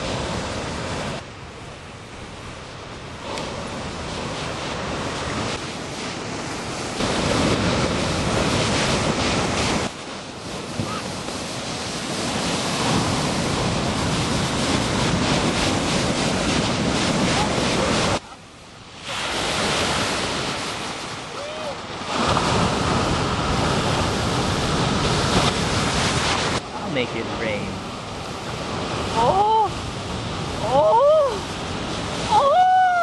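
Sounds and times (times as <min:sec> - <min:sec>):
wind buffeting microphone: 0:00.0 - 0:18.2
ocean surf breaking: 0:00.0 - 0:33.0.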